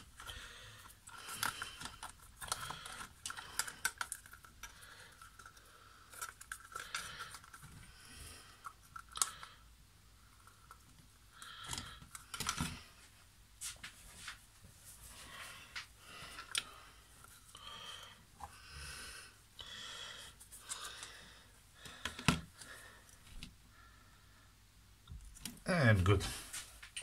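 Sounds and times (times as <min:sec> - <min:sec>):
plastic parts clicking and knocking: 0:00.0 - 0:08.0, 0:08.6 - 0:09.6, 0:10.3 - 0:13.0, 0:21.8 - 0:23.6.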